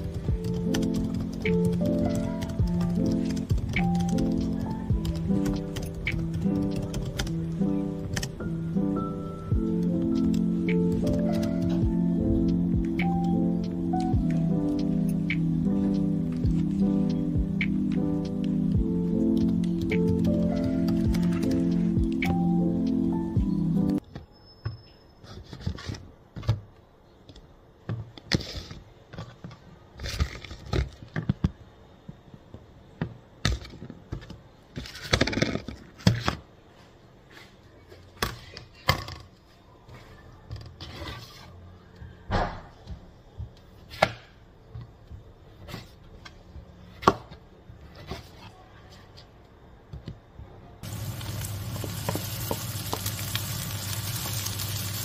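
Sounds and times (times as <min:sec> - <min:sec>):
vegetables frying in a pan: 0:50.8 - 0:55.0.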